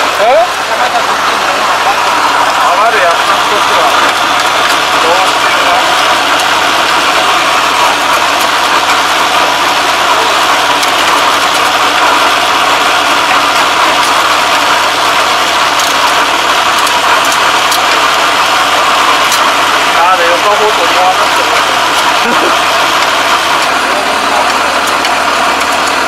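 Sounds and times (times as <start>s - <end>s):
diesel engine running: 0.0s - 26.0s.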